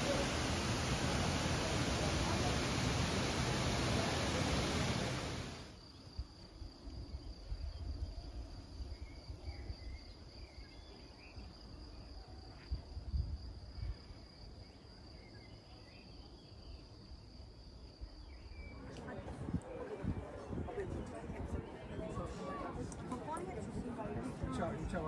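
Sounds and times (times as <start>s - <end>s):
insects trilling: 0.0s - 18.8s
faint bird chirps: 7.1s - 12.5s, 13.8s - 19.0s
wind rumbling on microphone: 18.7s - 22.3s.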